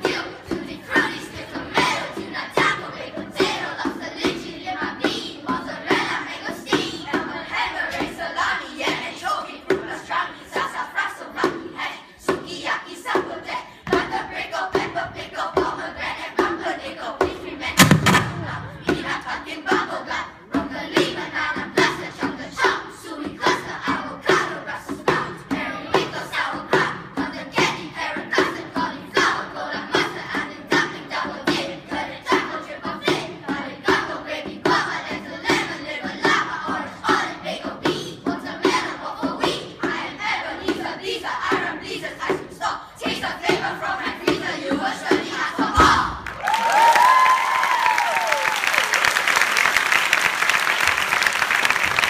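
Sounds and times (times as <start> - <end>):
children singing: 0.0 - 46.3
rhythmic vocal percussion: 0.0 - 52.0
sharp percussive hits: 17.7 - 19.3.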